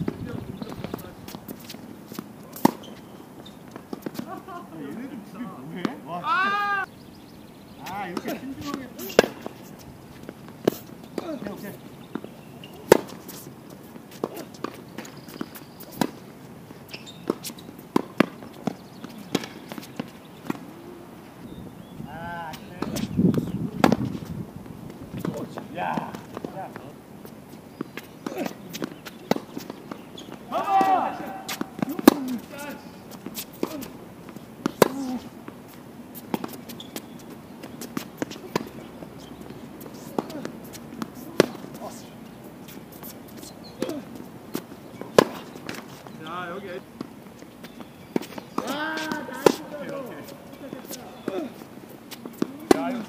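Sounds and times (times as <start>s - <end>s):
tennis ball bouncing: 0.0s - 4.4s, 7.8s - 20.8s, 22.8s - 24.3s, 24.9s - 53.0s
quick footsteps on court: 0.0s - 6.6s, 7.8s - 20.8s, 22.4s - 53.0s
tennis racket striking ball: 12.8s - 13.2s, 22.8s - 24.1s, 28.2s - 32.6s, 39.8s - 41.9s, 44.6s - 45.9s, 47.8s - 50.1s, 52.2s - 53.0s.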